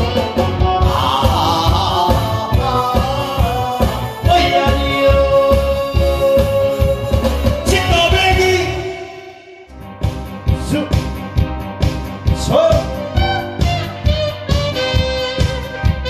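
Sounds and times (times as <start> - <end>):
deep drum beat: 0.0 - 8.9, 9.7 - 16.0
amplified backing track: 0.0 - 16.0
man singing into a microphone: 0.6 - 9.7.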